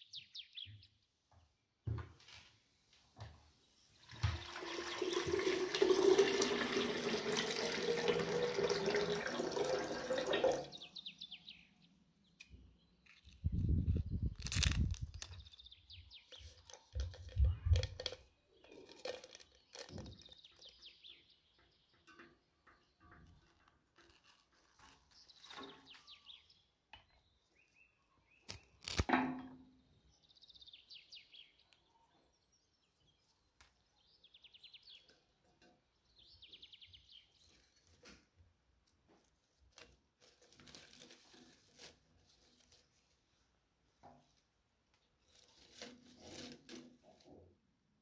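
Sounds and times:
birds chirping: 0:10.4 - 0:14.3.

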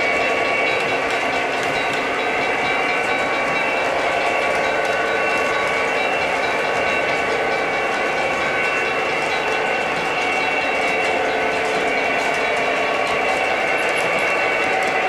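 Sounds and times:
model train humming: 0:00.0 - 0:15.0.

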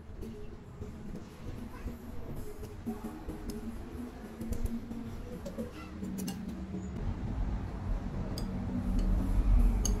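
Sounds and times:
chopsticks clicking on bowls: 0:09.8 - 0:10.0.

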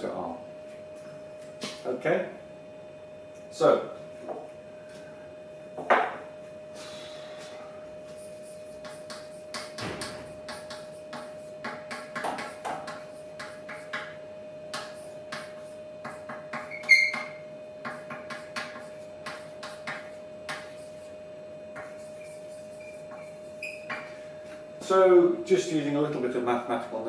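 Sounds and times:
chalk scratching on blackboard: 0:08.1 - 0:14.1, 0:14.7 - 0:24.2
chalk squeak: 0:16.2 - 0:17.4, 0:21.8 - 0:24.1.

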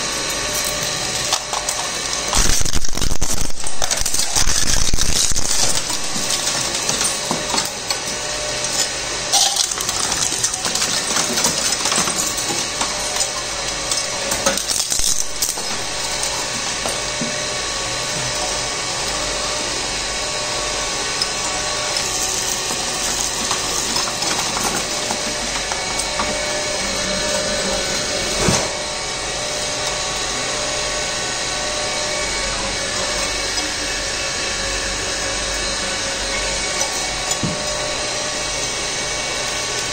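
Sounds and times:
shredder grinding: 0:00.0 - 0:39.9
cracks and clatter: 0:00.5 - 0:17.1.

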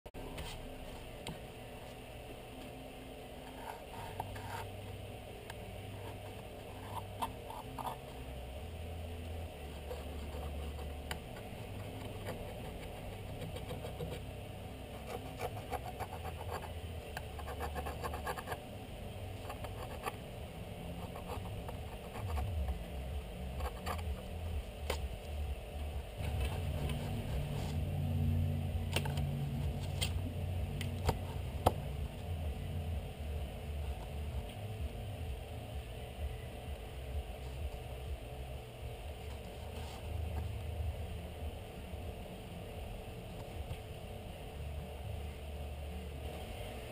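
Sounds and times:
low steady hum: 0:00.1 - 0:46.9
pencil scratching on paper: 0:15.0 - 0:16.7, 0:17.4 - 0:18.6.

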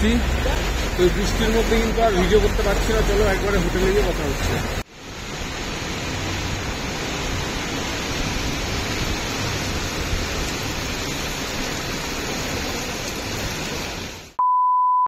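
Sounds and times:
heavy rain pouring: 0:00.0 - 0:14.4.

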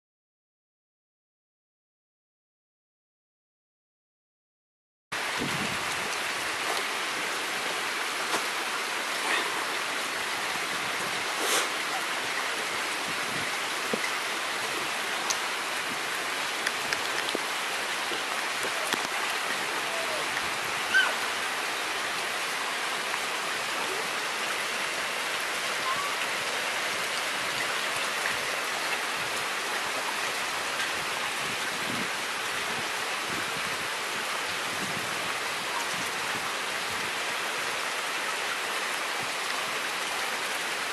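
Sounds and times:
rain falling on wet ground: 0:05.2 - 0:40.9
water dripping: 0:11.9 - 0:21.2.

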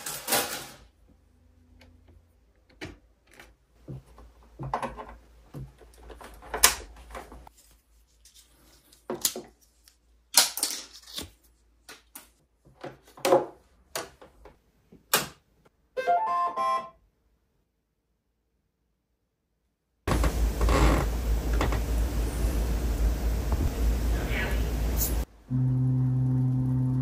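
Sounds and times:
electronic power-on melody: 0:16.0 - 0:16.9, 0:25.5 - 0:27.0.

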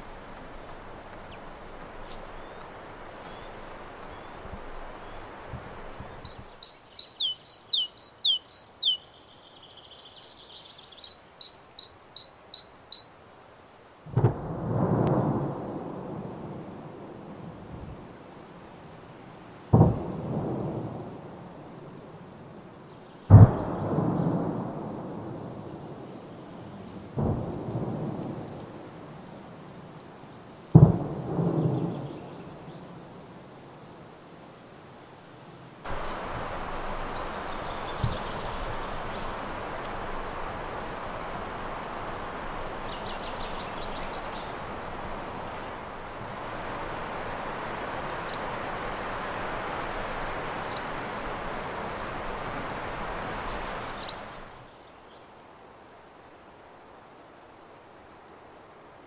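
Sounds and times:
songbird singing: 0:00.0 - 0:13.3, 0:25.3 - 0:28.8, 0:31.2 - 0:33.4, 0:35.0 - 0:55.4
distant booms: 0:14.1 - 0:16.0, 0:19.7 - 0:21.0, 0:23.3 - 0:25.0, 0:30.8 - 0:32.1.

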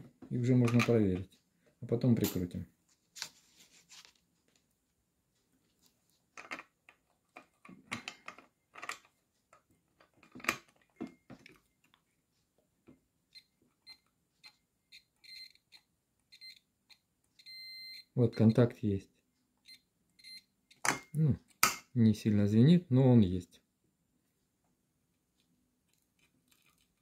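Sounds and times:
multimeter continuity beeps: 0:13.3 - 0:16.6, 0:17.4 - 0:18.8, 0:19.6 - 0:20.8.

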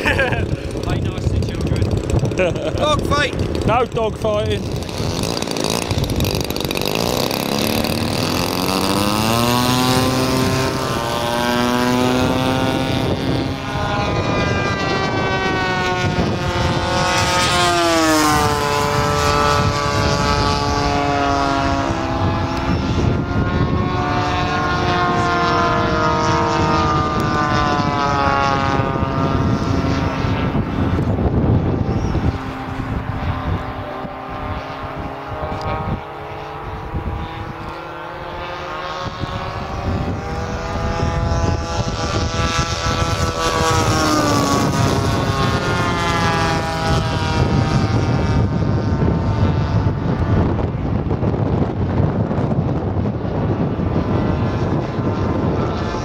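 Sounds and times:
model airplane engines at high throttle: 0:00.0 - 0:56.0.

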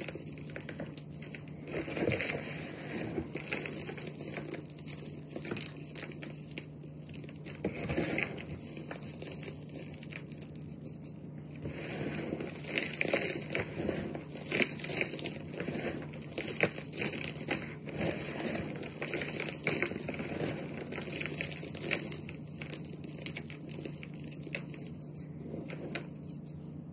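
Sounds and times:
chalk lumps crunching and crumbling: 0:00.0 - 0:26.7.

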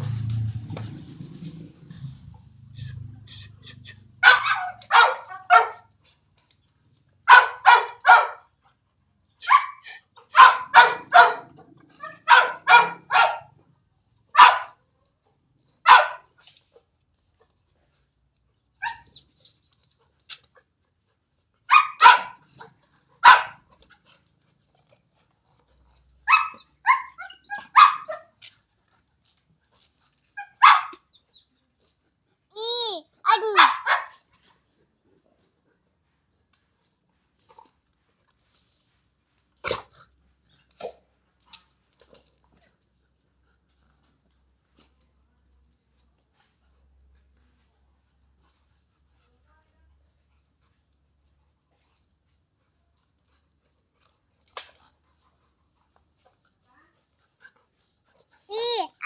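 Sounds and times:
dog barking: 0:04.2 - 0:05.9, 0:07.3 - 0:08.5, 0:09.4 - 0:13.6, 0:14.3 - 0:14.8, 0:15.8 - 0:16.3, 0:21.7 - 0:22.4, 0:23.2 - 0:23.6, 0:26.3 - 0:28.4, 0:30.4 - 0:31.1, 0:33.2 - 0:34.2.

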